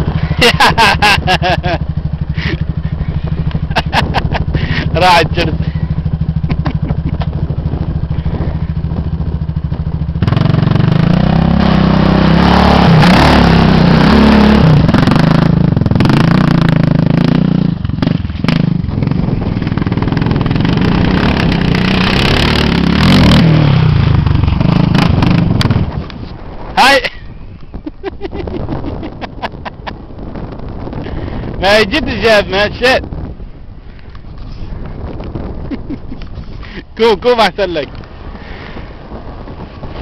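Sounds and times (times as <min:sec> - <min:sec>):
distant engine running: 0:00.0 - 0:26.5
engine revving up and down: 0:10.2 - 0:25.9.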